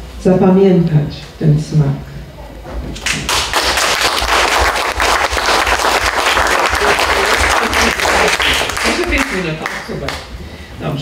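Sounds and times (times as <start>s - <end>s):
audience applauding: 3.0s - 10.3s.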